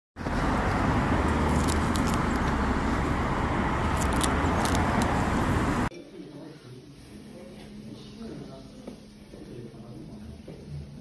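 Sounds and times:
road traffic rumble: 0.2s - 5.9s.

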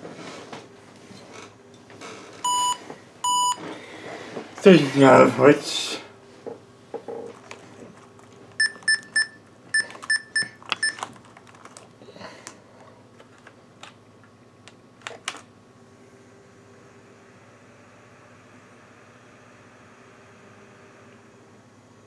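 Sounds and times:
short high laptop beeps: 2.5s - 3.6s, 8.6s - 11.0s.

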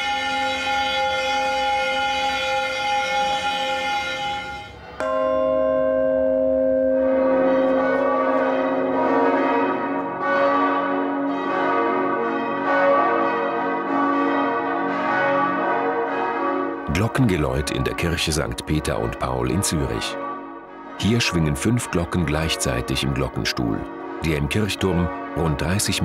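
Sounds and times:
peal of church bells: 0.0s - 26.0s
large bell ringing: 3.8s - 26.0s.

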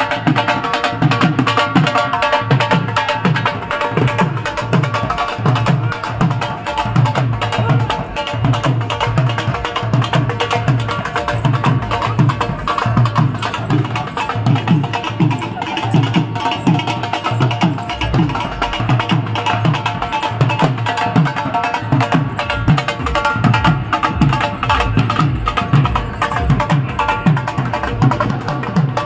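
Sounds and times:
folk dance music with drums: 0.0s - 29.0s.

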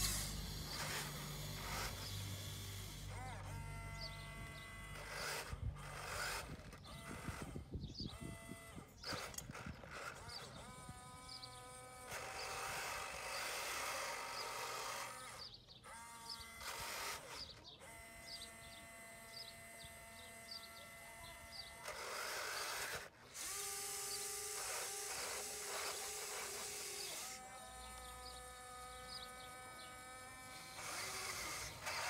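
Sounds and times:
small birds chirping: 0.0s - 32.0s
small electric motors whirring: 0.0s - 32.0s.

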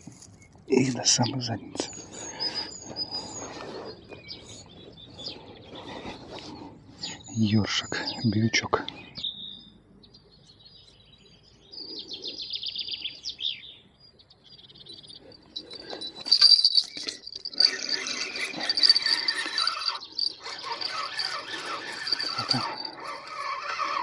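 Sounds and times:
songbirds chirping: 0.0s - 24.0s
fishing reel whirring: 15.6s - 24.0s.

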